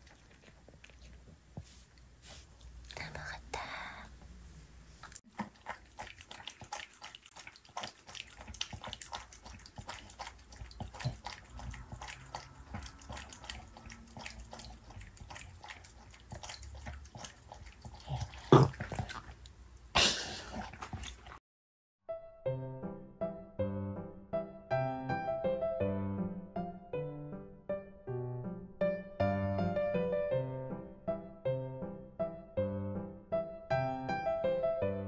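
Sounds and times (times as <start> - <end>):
dog lapping water: 0.0 - 1.4, 5.0 - 21.4.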